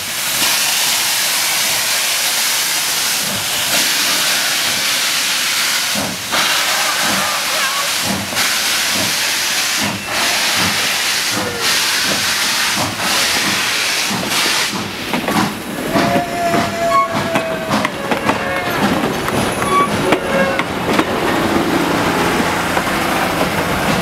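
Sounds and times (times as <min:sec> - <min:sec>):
steam locomotive hissing: 0:00.0 - 0:24.0
train wheels clicking over rails: 0:00.0 - 0:24.0
wheels squealing: 0:15.8 - 0:20.8.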